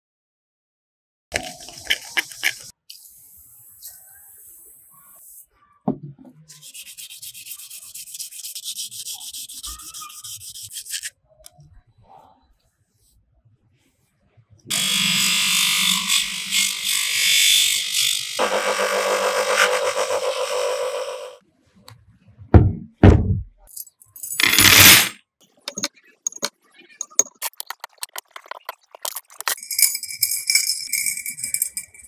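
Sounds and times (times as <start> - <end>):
loud thumps: 22.5 - 23.6
rubbing or scraping: 24.4 - 25.2
small clicks and rattles: 25.7 - 32.0.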